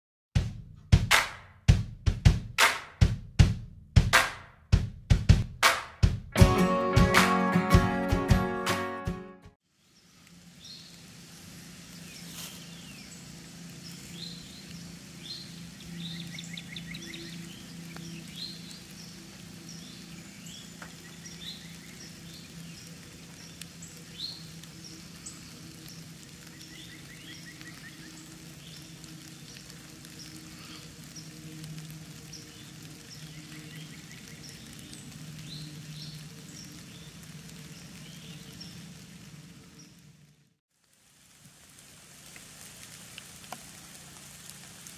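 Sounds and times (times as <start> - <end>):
light hiss: 9.6 - 44.9
birds chirping and trilling: 11.9 - 39.0.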